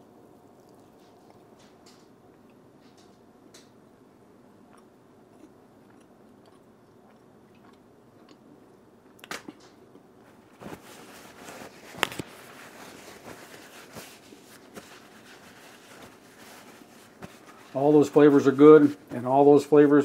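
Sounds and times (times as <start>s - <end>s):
person chewing: 4.6s - 10.2s.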